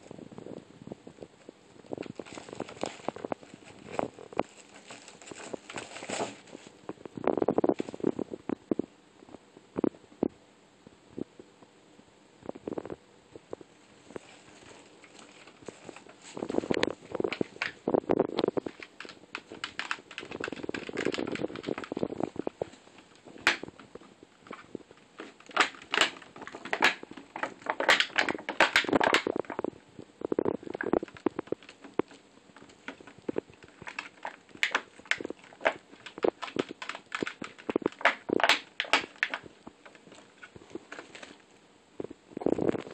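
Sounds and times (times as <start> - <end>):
tissue paper crinkling: 2.0 - 6.8, 14.0 - 17.8.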